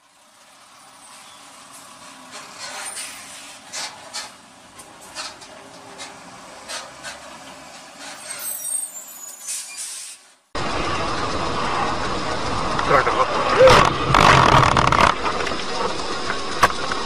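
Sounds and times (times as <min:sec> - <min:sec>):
road noise: 0:00.0 - 0:17.0
high squeal: 0:08.0 - 0:10.2
short sharp hissing: 0:08.2 - 0:10.4.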